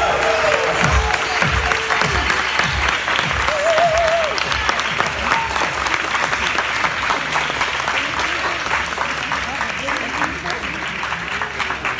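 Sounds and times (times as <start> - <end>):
audience applauding: 0.0 - 11.9
person whooping: 3.5 - 4.5.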